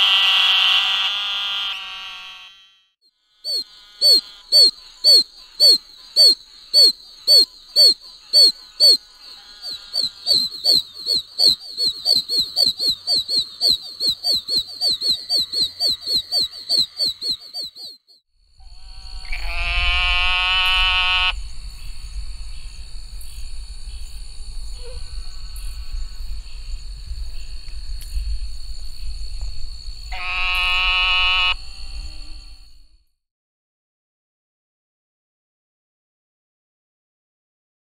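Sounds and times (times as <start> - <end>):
frog bleating call: 3.4 - 12.7, 18.8 - 21.4, 30.1 - 31.7
toads peeping chirps: 3.4 - 18.2.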